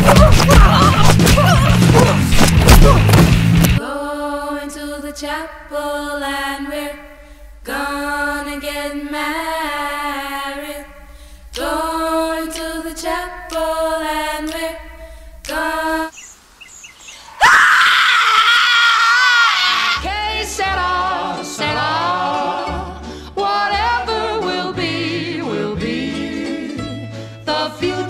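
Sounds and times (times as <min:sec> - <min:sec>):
loud high-pitched scream: 0:17.2 - 0:20.0.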